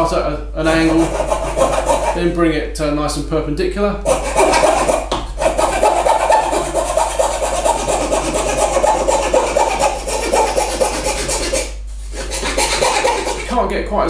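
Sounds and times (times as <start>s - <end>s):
saw cutting wood: 0.7s - 2.2s, 4.1s - 13.5s.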